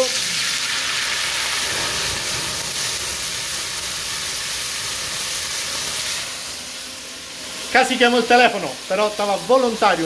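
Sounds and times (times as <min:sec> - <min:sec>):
wine sizzling in hot oil: 0:00.0 - 0:10.0
pan flaring up with rumble: 0:00.8 - 0:07.7.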